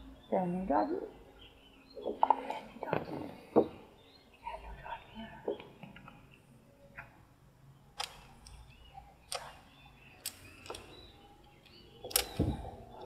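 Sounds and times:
checkers clicking on board: 11.6 - 12.5.

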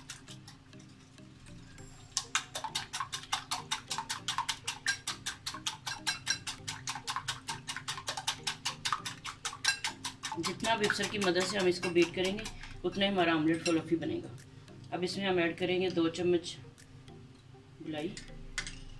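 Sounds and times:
whisk clicking on glass bowl: 2.1 - 13.8.

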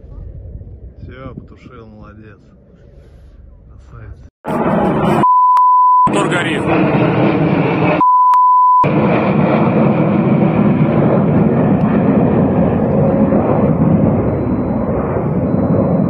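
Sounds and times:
jet engines roaring: 4.4 - 5.3, 6.1 - 8.0, 8.8 - 16.0
short steady beep: 5.2 - 6.3, 8.0 - 8.9.

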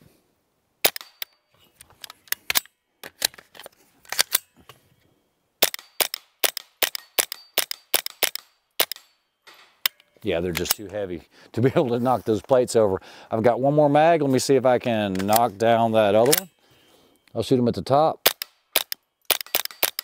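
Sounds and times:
suppressed rifle shots: 5.6 - 9.0.

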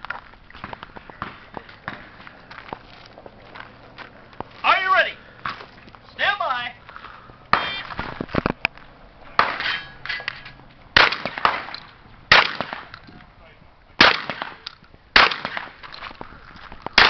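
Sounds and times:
shotgun shots: 7.5 - 8.0, 9.4 - 9.8, 11.0 - 13.0, 14.0 - 15.9
metallic ring of steel targets: 9.4 - 10.6.

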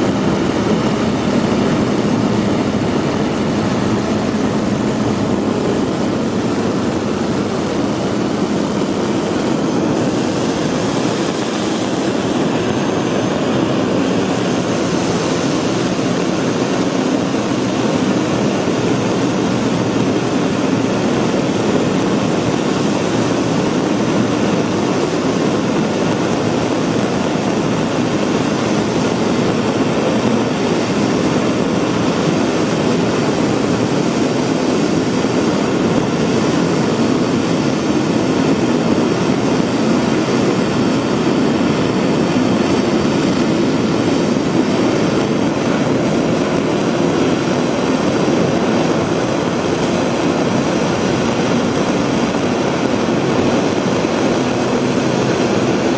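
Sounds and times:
rocket engine firing: 0.0 - 55.9.

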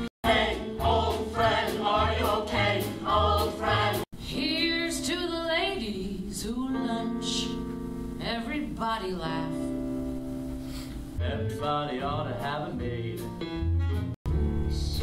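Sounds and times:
show-tune singing with band: 0.2 - 4.0.

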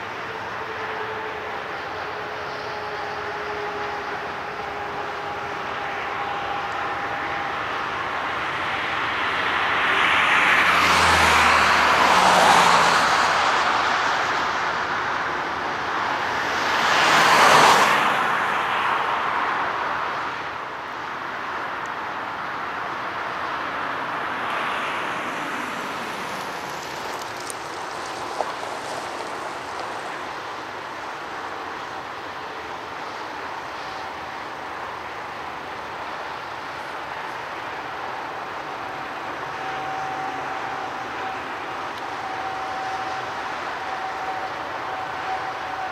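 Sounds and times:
jet engines roaring: 0.0 - 20.5.

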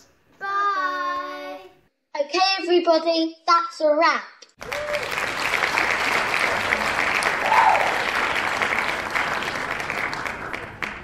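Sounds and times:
crowd applause: 4.6 - 11.0.

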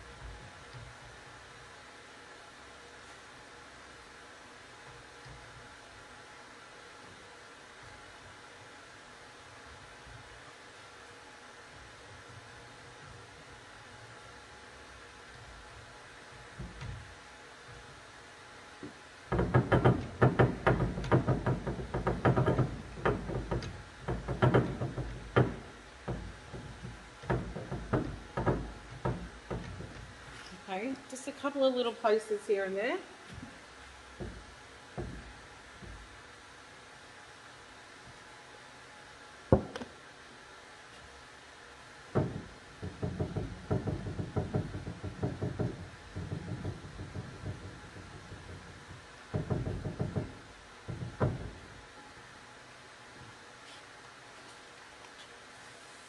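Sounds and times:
knocking: 15.3 - 18.0, 18.8 - 30.5, 34.1 - 36.3, 39.5 - 39.9, 42.1 - 52.0.

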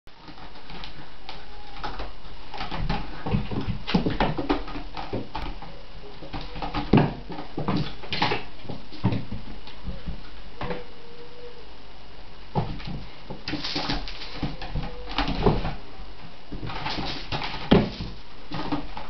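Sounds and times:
kitten thumping toys: 16.5 - 19.0.

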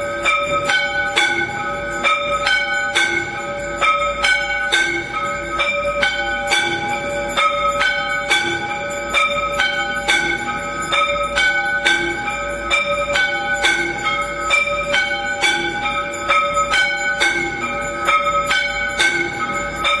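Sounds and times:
temple bells ringing: 0.0 - 20.0.

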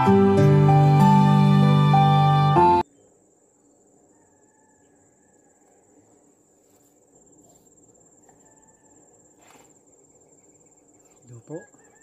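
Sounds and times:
insects trilling: 2.8 - 12.0.

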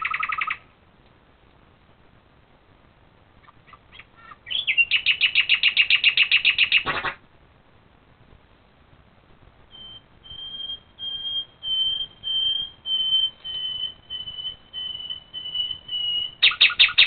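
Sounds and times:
short sharp noise: 6.8 - 7.2
high-pitched chirps: 9.7 - 17.0.

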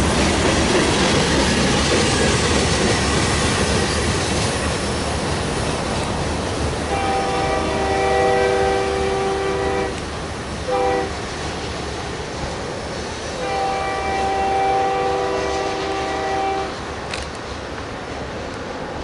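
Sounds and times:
rumble of rolling freight cars: 0.0 - 19.0
locomotive air horn blasts: 6.9 - 10.0, 10.7 - 11.2, 13.4 - 16.8.

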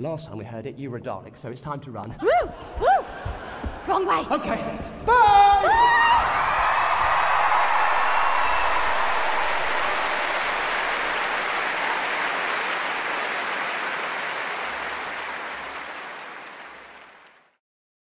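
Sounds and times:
large audience applauding: 5.8 - 17.6.

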